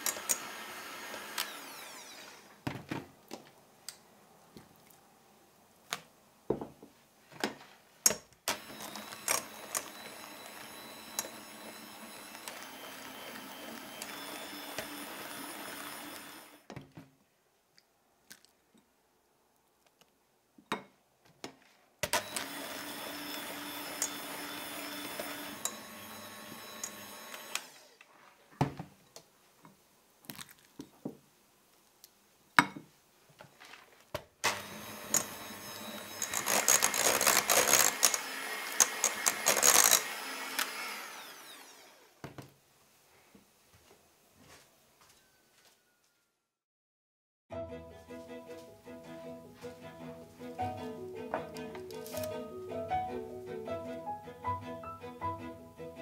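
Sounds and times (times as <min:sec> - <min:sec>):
electric hand mixer whipping: 0:00.0 - 0:02.6, 0:08.5 - 0:16.7, 0:22.1 - 0:28.0, 0:34.4 - 0:42.2.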